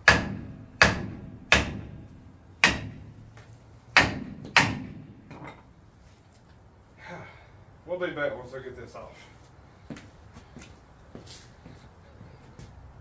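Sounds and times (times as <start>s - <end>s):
hammer striking metal: 0.0s - 3.2s, 4.0s - 5.6s.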